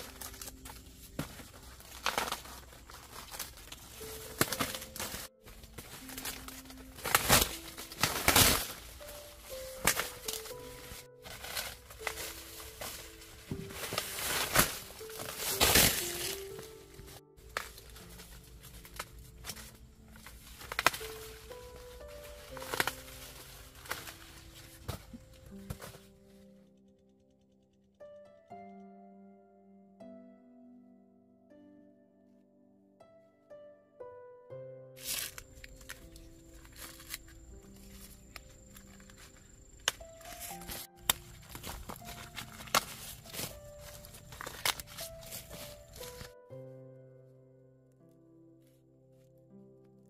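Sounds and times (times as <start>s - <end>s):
dry corn leaves crinkling: 0.0s - 26.5s, 35.0s - 46.4s
soft background music: 0.0s - 50.0s.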